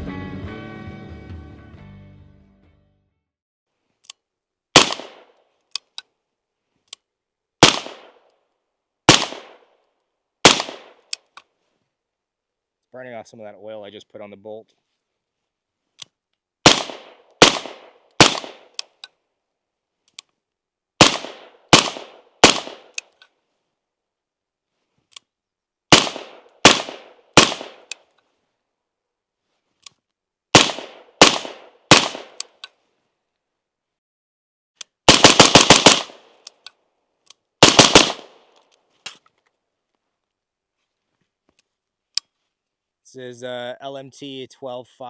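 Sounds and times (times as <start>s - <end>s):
suppressed rifle shots: 4.8s - 5.3s, 7.6s - 8.2s, 9.1s - 9.6s, 10.4s - 11.0s, 16.6s - 18.8s, 21.0s - 23.0s, 25.9s - 28.0s, 30.5s - 32.5s, 35.1s - 36.3s, 37.6s - 38.5s.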